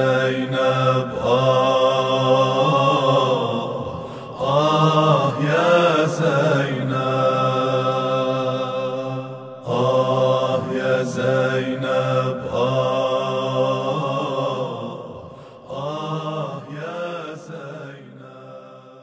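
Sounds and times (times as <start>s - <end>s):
men chanting a lament: 0.0s - 19.0s.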